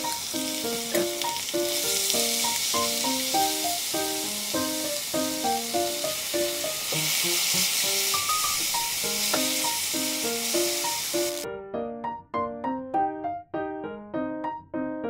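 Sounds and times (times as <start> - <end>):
food sizzling in a frying pan: 0.0 - 11.4
keyboard background music: 0.0 - 15.0.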